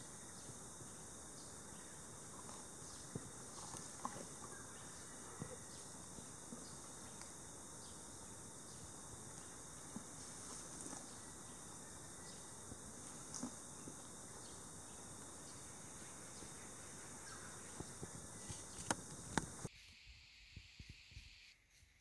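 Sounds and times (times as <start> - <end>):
high-pitched insect chorus: 0.0 - 19.7
outdoor background noise: 0.0 - 22.0.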